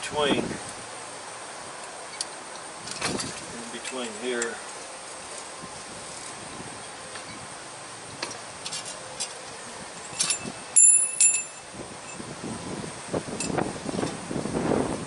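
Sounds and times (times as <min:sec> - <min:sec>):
steel parts ringing: 0:10.0 - 0:12.3.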